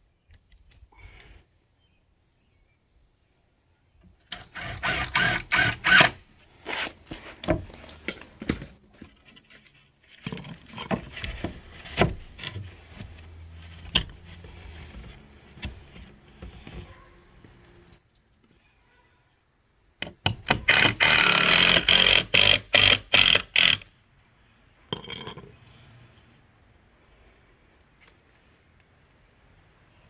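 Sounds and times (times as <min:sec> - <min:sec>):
hard objects knocking and clattering: 0:24.9 - 0:25.6.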